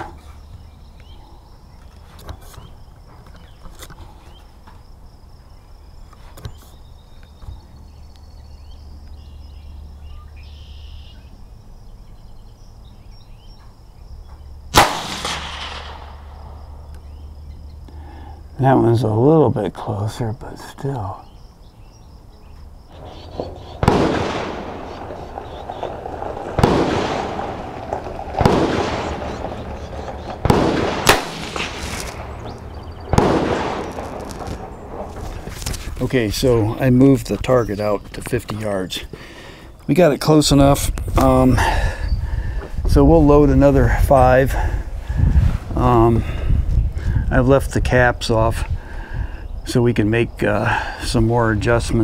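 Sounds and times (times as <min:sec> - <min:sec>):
insects chirring: 0:00.0 - 0:52.0
sharp rifle click: 0:14.7 - 0:16.2, 0:30.5 - 0:32.3
rifle shot: 0:14.7 - 0:16.6, 0:23.0 - 0:35.2.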